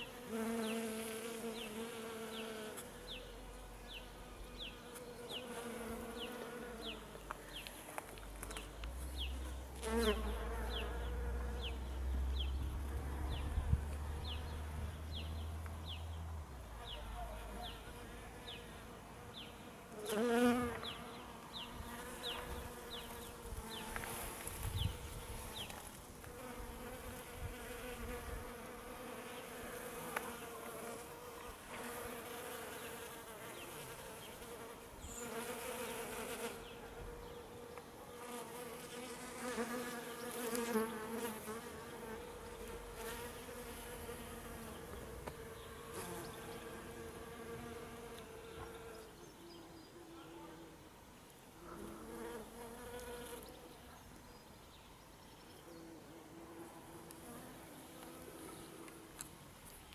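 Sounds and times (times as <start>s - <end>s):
bees buzzing: 0.0s - 15.5s, 16.8s - 49.1s.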